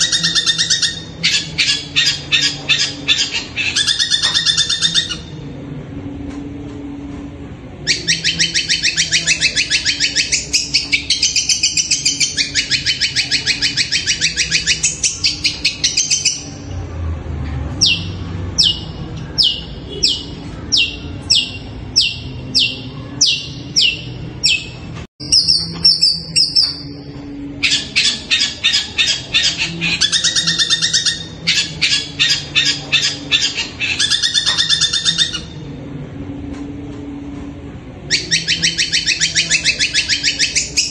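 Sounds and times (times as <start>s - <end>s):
bird harsh chattering: 0.0s - 5.3s, 27.6s - 35.6s.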